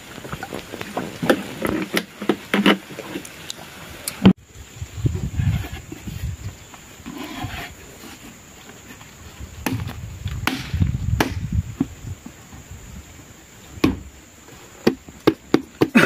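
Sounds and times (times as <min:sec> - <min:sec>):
rubber boots thudding and rubbing: 0:13.8 - 0:14.2.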